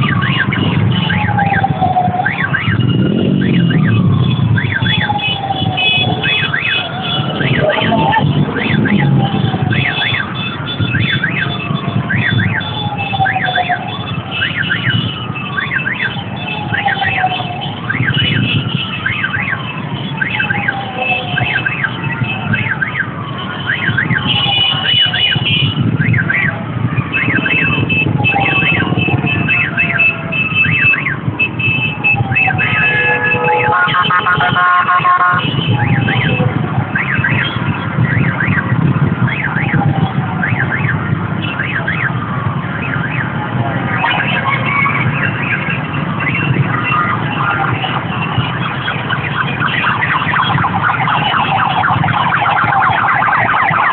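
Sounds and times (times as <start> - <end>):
double chirp siren: 0.0 - 53.9
low rumble of engines: 0.0 - 53.9
low street noise: 0.0 - 53.9
wailing siren: 0.0 - 53.9
electronic chirps: 7.5 - 8.9
vehicle horns honking: 18.0 - 19.1, 23.4 - 25.9, 32.6 - 36.4.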